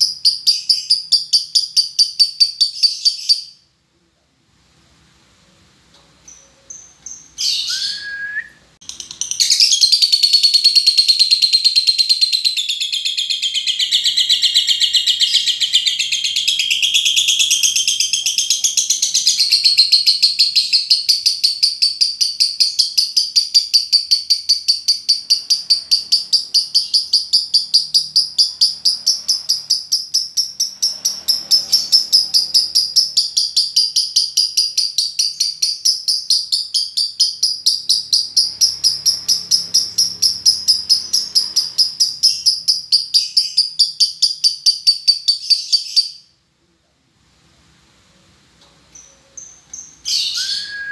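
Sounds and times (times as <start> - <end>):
lovebird chirps: 0.0 - 3.7, 6.2 - 46.4, 48.9 - 50.9
lovebird chattering trill: 8.9 - 46.2.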